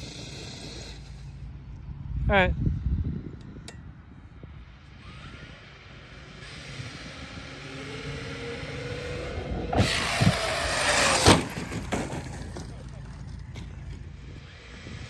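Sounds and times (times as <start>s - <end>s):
electric motor whine: 4.4s - 15.0s
tyre noise: 9.5s - 14.8s.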